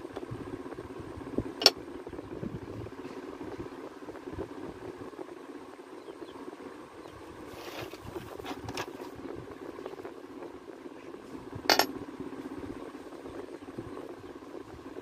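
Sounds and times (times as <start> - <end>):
low background hum: 0.0 - 15.0
cord rustling on a tabletop: 7.4 - 9.2.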